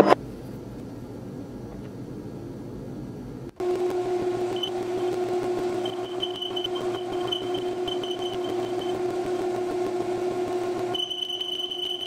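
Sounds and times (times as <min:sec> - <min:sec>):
high cutting whine: 0:03.6 - 0:12.0
metal lathe humming: 0:03.6 - 0:12.0.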